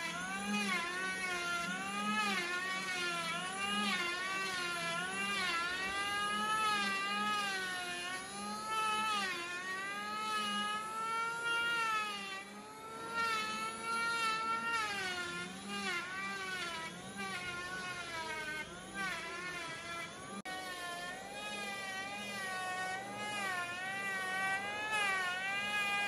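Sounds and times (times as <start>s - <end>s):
electric hand planer cutting wood: 0.0s - 26.0s.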